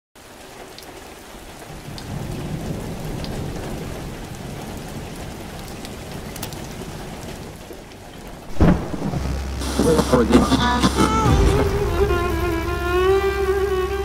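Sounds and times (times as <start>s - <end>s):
rain falling: 0.2s - 14.0s
low roll of thunder: 1.8s - 5.6s, 8.5s - 9.4s.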